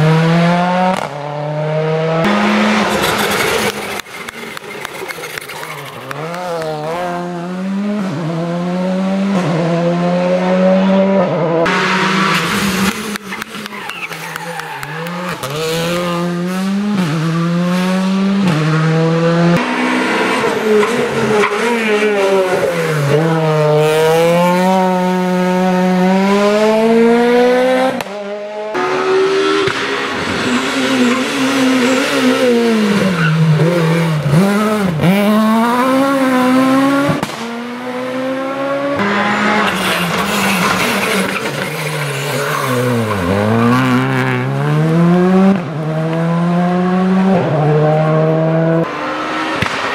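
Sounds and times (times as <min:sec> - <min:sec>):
rally car engines revving hard: 0:00.0 - 0:49.9.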